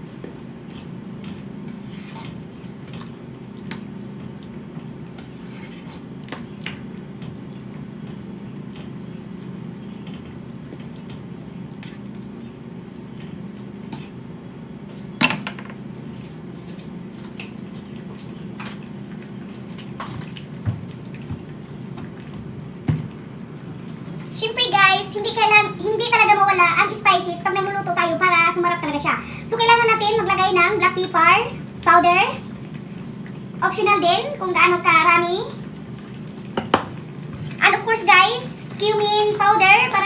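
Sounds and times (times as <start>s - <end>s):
spatula scraping frying pan: 1.7s - 2.4s, 5.3s - 6.1s.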